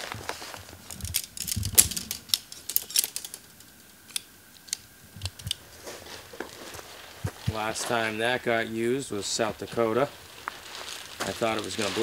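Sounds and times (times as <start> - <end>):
tent poles clicking and rattling: 0.0 - 8.0.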